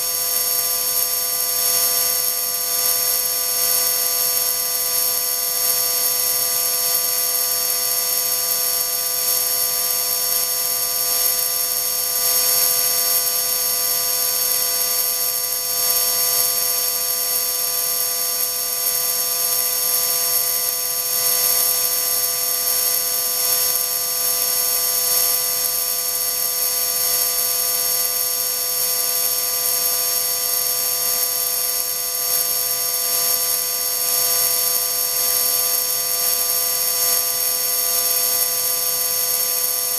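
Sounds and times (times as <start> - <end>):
electric motor high whine: 0.0 - 39.9.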